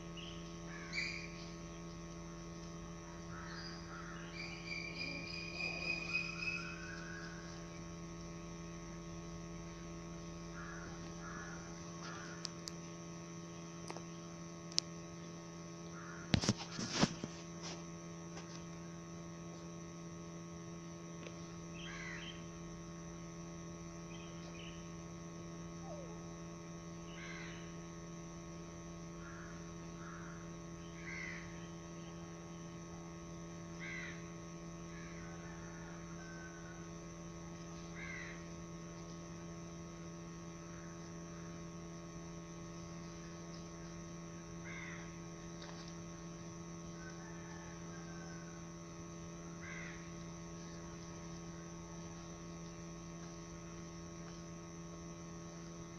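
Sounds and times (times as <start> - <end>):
steady electrical hum: 0.0 - 55.9
faint high chirps: 3.5 - 7.6.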